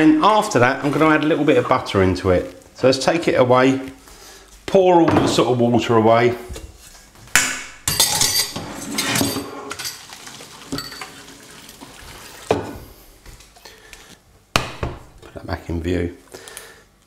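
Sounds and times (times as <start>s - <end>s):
metal pot and colander clanks: 7.8s - 10.0s
water poured through colander: 9.7s - 12.5s.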